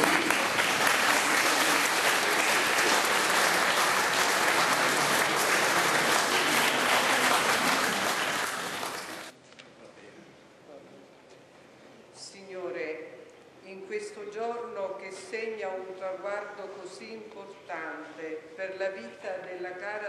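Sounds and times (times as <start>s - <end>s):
congregation applauding: 0.0s - 9.3s.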